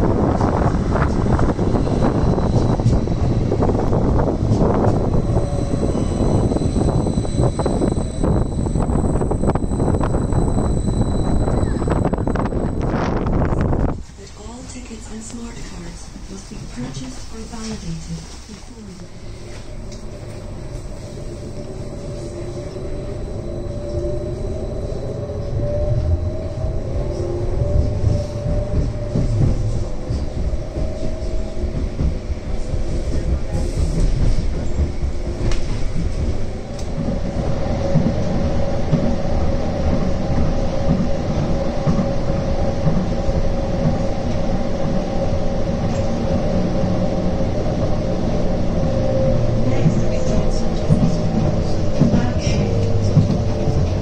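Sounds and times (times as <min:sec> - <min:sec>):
steady whine: 0:00.0 - 0:54.0
tram rumble: 0:00.0 - 0:54.0
electric motor whine: 0:01.7 - 0:13.9.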